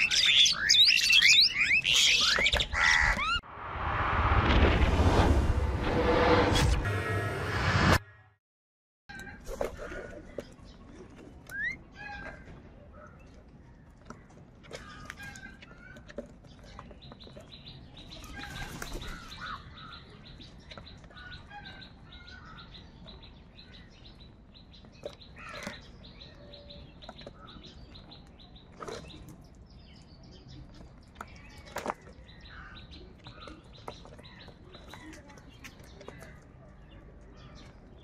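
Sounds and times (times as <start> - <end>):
crows calling: 0.0 - 3.4, 18.5 - 20.1, 25.3 - 25.9, 32.3 - 32.9.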